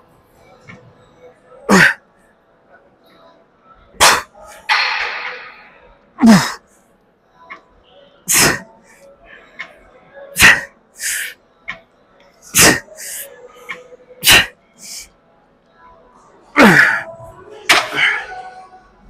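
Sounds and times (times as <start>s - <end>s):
man groaning: 6.2s - 6.6s.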